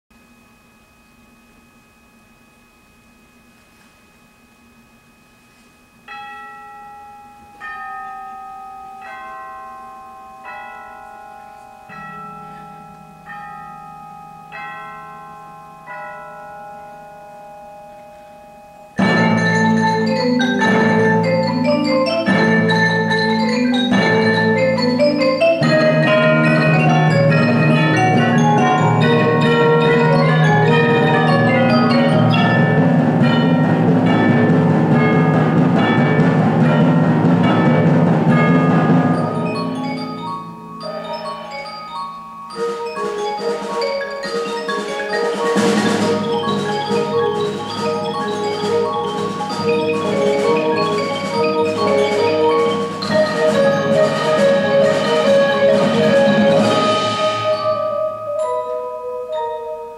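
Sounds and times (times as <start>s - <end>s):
bell-like mallet strokes: 6.0s - 59.9s
marimbas playing fast: 6.1s - 59.9s
drums: 18.9s - 59.9s.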